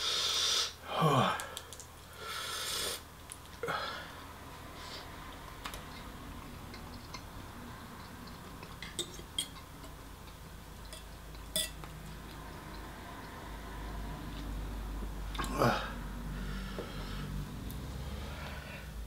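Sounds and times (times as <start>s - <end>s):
cutlery clinking against dishes: 8.8s - 10.0s, 10.9s - 11.8s.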